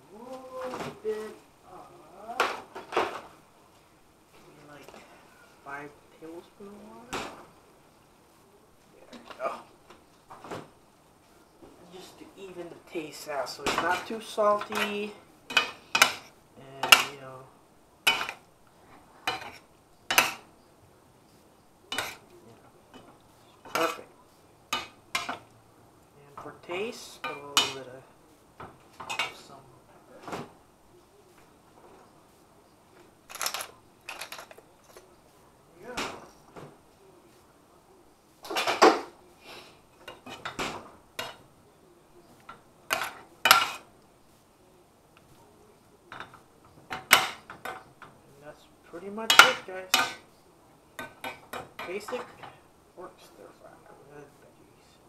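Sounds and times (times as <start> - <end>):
metal spoon scraping frying pan: 42.9 - 43.9.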